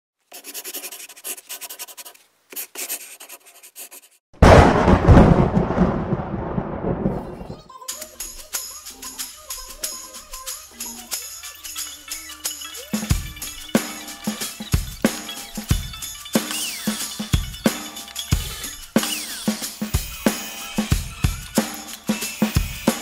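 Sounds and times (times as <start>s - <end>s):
pencil sketching strokes: 0.2s - 4.2s
cinematic impact with rumble: 4.4s - 7.5s
music with steady beat: 7.9s - 23.0s.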